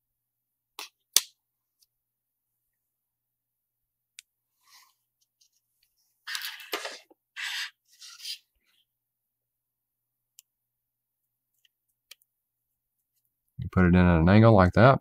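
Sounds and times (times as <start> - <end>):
circuit boards rubbing and scraping: 6.2 - 8.5.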